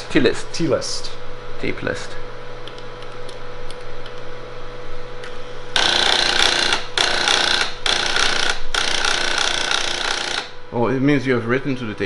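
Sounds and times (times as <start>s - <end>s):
thermal printer buzzing rattle: 5.7s - 10.7s.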